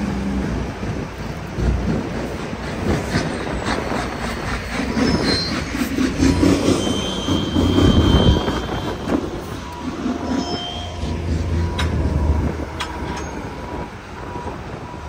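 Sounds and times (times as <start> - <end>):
heavy machinery rumbling: 0.0 - 15.0
high metallic squeals: 3.4 - 15.0.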